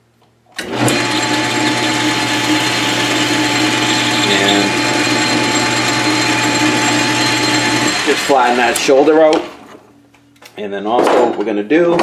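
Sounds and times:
metal lathe running: 0.6s - 9.1s.

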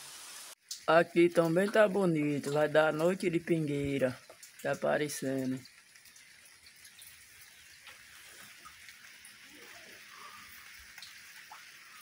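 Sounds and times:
drizzle hissing: 7.5s - 12.0s.

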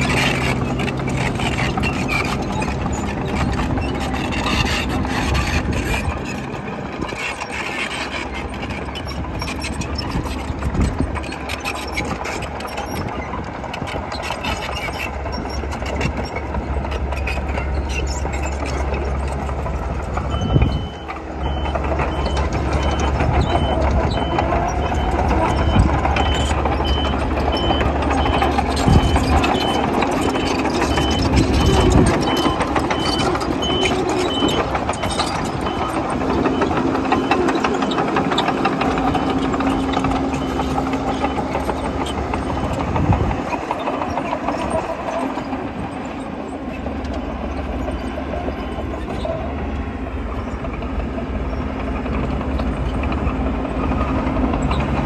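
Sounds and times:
earthmoving machine engine running: 0.0s - 55.0s
reversing alarm beeping: 20.2s - 37.6s.

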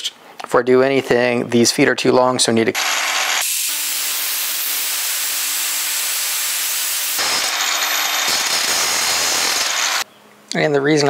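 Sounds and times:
angle grinder motor whine: 2.8s - 10.0s.

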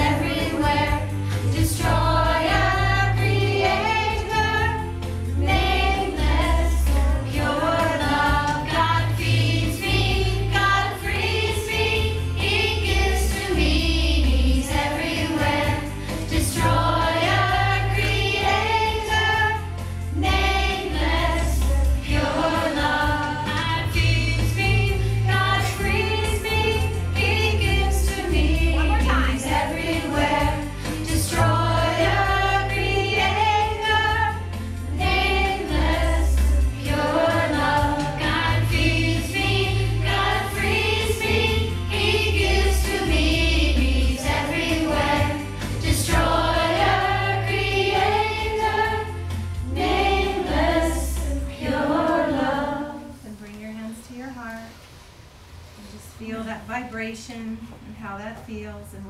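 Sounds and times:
bass line: 0.0s - 51.5s
choir chanting: 20.2s - 34.3s, 34.9s - 53.2s.

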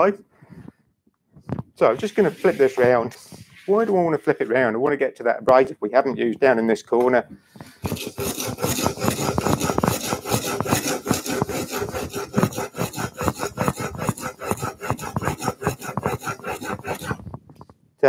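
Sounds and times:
chisel rasping on abrasive sheet: 2.0s - 3.0s, 7.6s - 17.4s.

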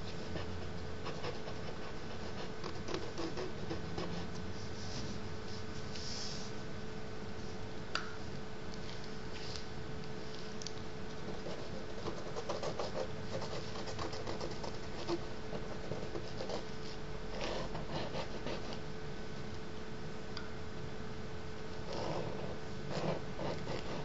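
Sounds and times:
stick scratching on paper: 0.0s - 5.2s, 11.2s - 18.8s, 21.8s - 24.0s
faint hum: 0.0s - 24.0s.

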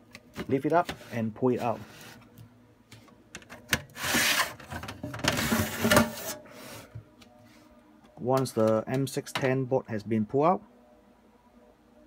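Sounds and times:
board scraping along metal tray: 3.9s - 6.4s.

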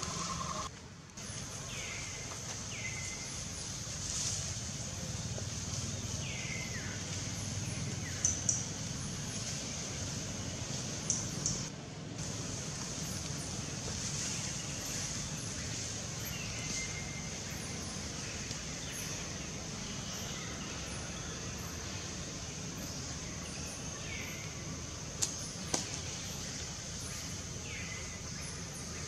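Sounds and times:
high-pitched hiss: 0.0s - 29.0s.

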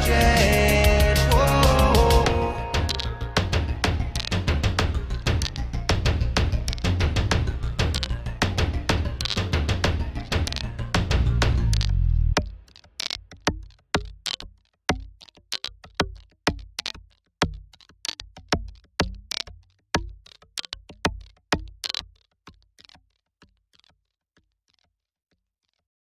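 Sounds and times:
hip-hop drum beat: 0.0s - 11.7s.

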